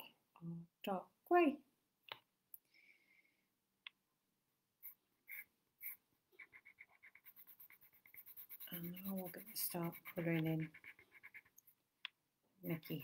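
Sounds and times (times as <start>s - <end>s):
pencil shading on paper: 4.8s - 11.6s, 12.7s - 13.0s.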